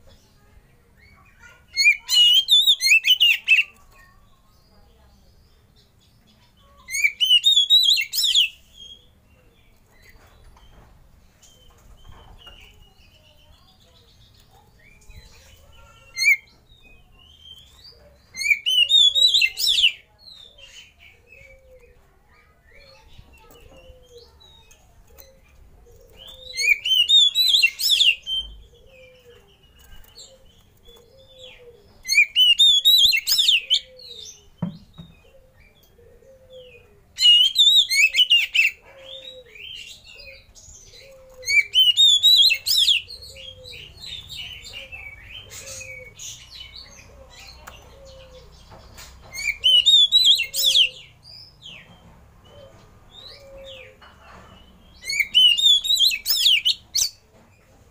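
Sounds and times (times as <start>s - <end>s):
bird singing whistled phrases: 55.1s - 57.1s.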